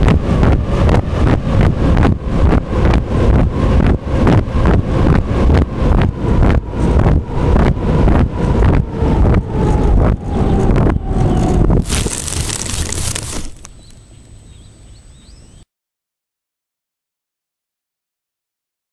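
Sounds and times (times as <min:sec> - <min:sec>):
aircraft engine pulsing: 0:00.0 - 0:13.8
wind on microphone: 0:00.0 - 0:13.9.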